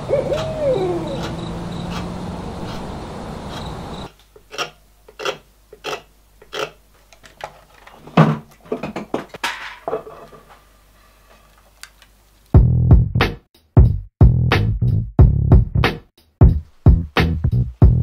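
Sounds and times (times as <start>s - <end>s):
carving gouge chip-cutting wood: 1.2s - 6.8s.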